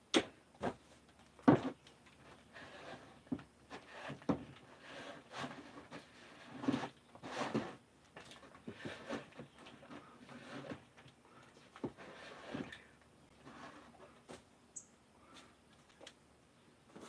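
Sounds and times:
brushing or rubbing noise: 2.5s - 7.8s, 11.8s - 14.1s.

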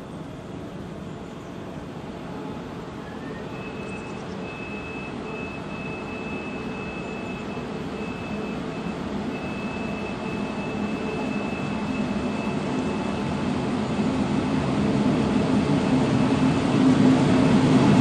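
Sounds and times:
train rumble approaching: 0.0s - 18.0s
thin high whine: 2.2s - 14.7s.

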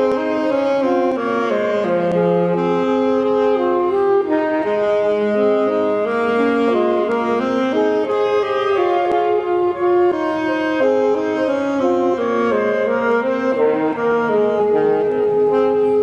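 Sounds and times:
saxophone duet: 0.0s - 16.0s.

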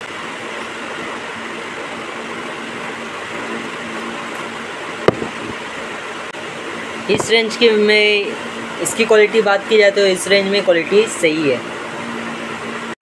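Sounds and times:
background hum and hiss: 0.0s - 13.0s
plastic skate knock: 5.1s - 5.4s.

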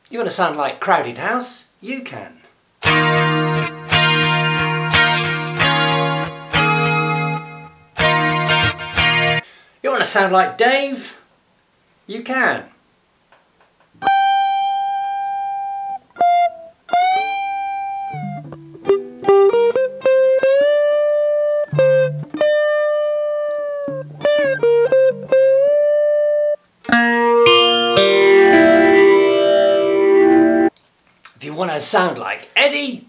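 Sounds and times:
electric guitar lead line: 2.8s - 9.4s, 14.0s - 30.7s.

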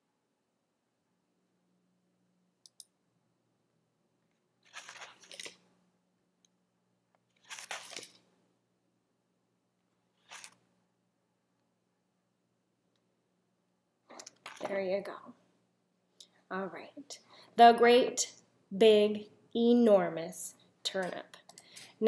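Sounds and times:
faint low hum: 0.0s - 22.0s
computer mouse clicks: 2.6s - 3.0s, 14.1s - 14.7s, 21.0s - 21.9s
mouse rustling on desk: 4.6s - 5.7s, 7.3s - 8.3s, 10.2s - 10.6s.

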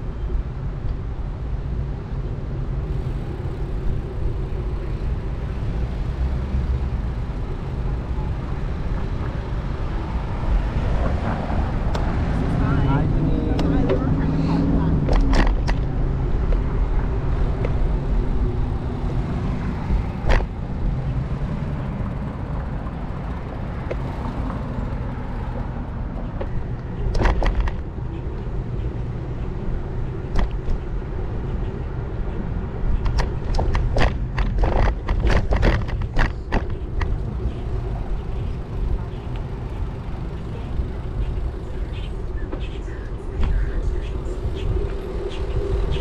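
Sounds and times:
bicycle riding rumble: 0.0s - 46.0s
sharp clicks and knocks: 15.1s - 15.9s, 20.2s - 20.5s, 26.2s - 27.9s, 33.0s - 37.3s.

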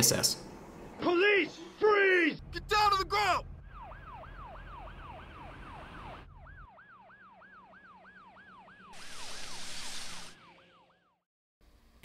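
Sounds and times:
police siren yelping: 2.6s - 11.2s.

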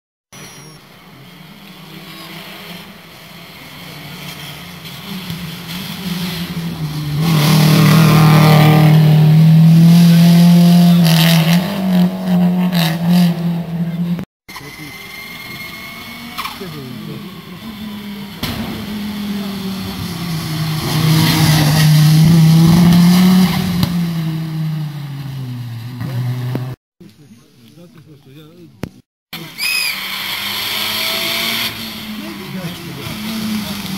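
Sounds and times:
rally car engine approaching: 1.2s - 14.2s, 29.5s - 33.9s.

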